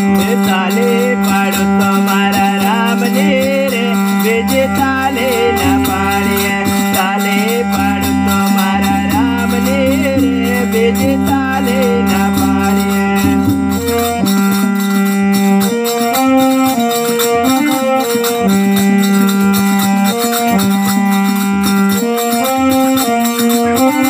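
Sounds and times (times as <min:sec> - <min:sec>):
reedy held-note melody: 0:00.0 - 0:24.0
steady rhythmic beat: 0:00.0 - 0:24.0
low drone: 0:04.2 - 0:13.6.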